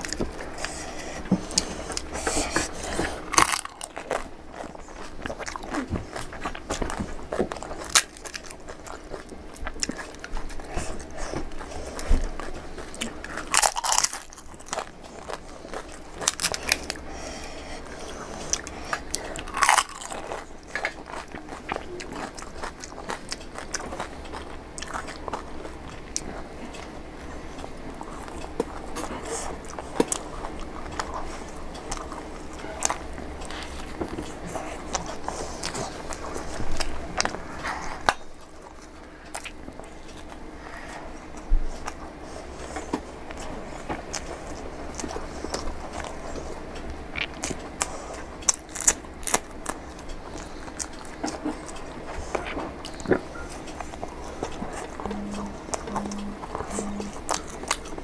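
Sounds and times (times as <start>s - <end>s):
chewing: 0.0s - 58.0s
crisp shells crunching: 3.2s - 4.3s, 13.4s - 17.0s, 19.0s - 21.6s.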